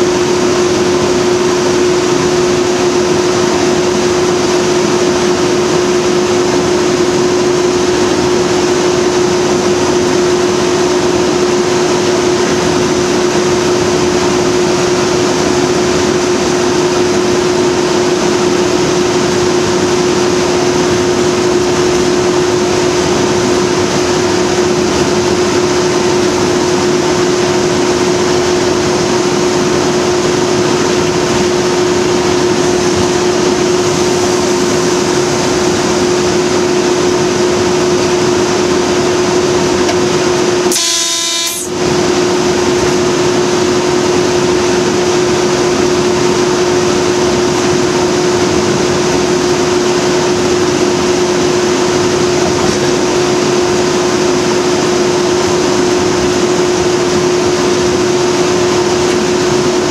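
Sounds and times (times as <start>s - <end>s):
diesel locomotive engine drone: 0.0s - 59.9s
locomotive horn blast: 40.7s - 41.8s.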